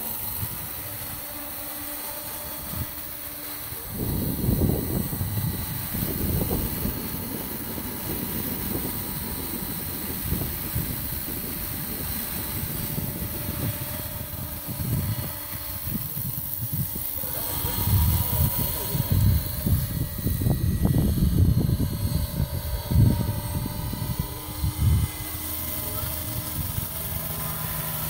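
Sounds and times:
model helicopter rotor drone: 0:00.0 - 0:28.0.

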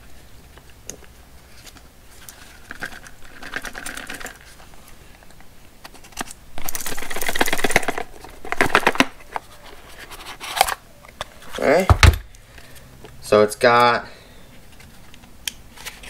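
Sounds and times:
cardboard and plastic rustling: 0:01.3 - 0:12.8.

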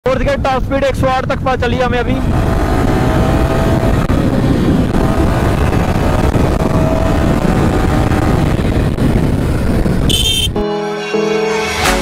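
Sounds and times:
wind buffeting camera: 0:00.1 - 0:10.6
motorcycle engine accelerating: 0:02.1 - 0:10.6.

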